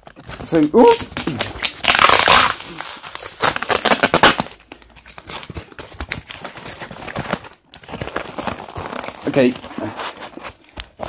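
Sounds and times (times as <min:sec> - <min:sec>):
packaging crinkling: 0:00.0 - 0:11.0.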